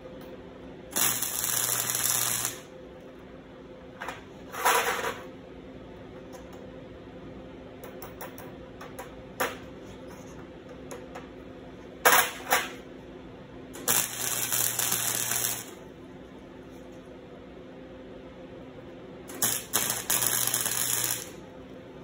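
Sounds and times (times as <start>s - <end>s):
welding machine hum: 0.8s - 3.2s, 13.7s - 17.3s, 19.2s - 22.0s
welding buzzing crackle: 0.9s - 2.7s, 13.8s - 15.8s, 19.3s - 21.5s.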